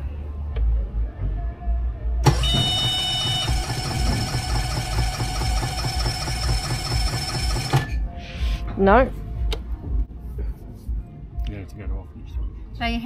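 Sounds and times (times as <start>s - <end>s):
engine electric starter cranking: 2.2s - 8.0s
brief high beep: 2.3s - 3.6s.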